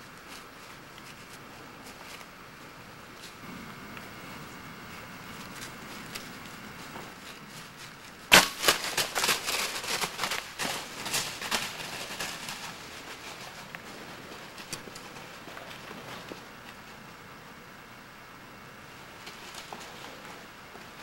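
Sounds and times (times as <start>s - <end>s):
animal crashing through dry leaves: 5.3s - 16.7s.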